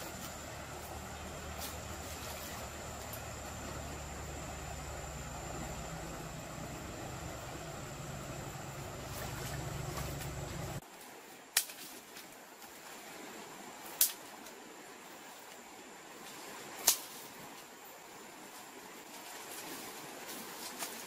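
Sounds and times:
dry sticks snapping: 11.5 - 12.0, 14.0 - 14.2, 16.8 - 17.1.

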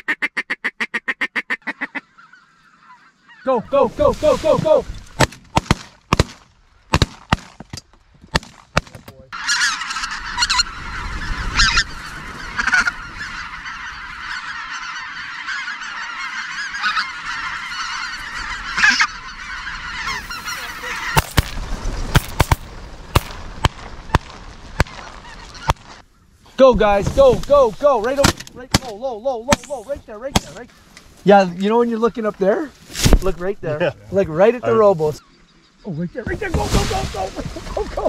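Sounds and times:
geese calling: 0.0 - 7.6, 8.8 - 38.0
shotgun shots: 5.2 - 7.6, 21.2 - 25.0.

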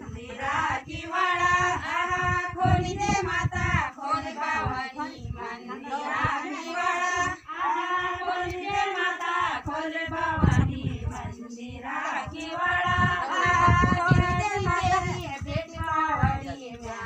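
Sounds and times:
women singing folk song: 0.0 - 17.0
low thuds: 9.9 - 16.9.

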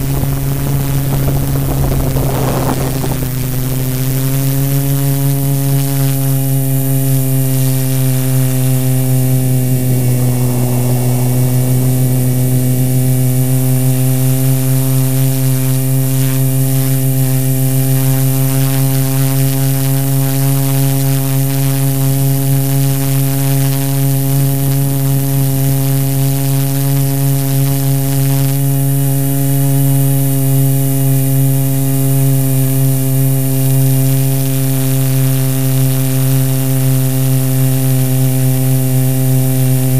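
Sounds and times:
drone propellers humming: 0.0 - 26.2.

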